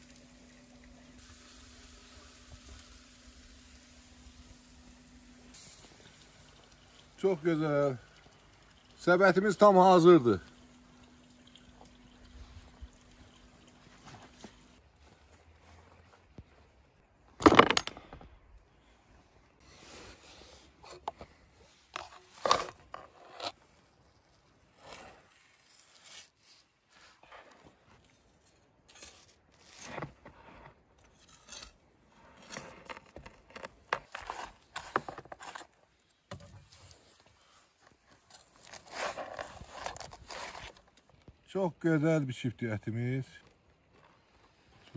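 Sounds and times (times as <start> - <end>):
knife scraping along metal skewer: 24.8 - 26.7, 28.5 - 30.1, 31.1 - 32.8.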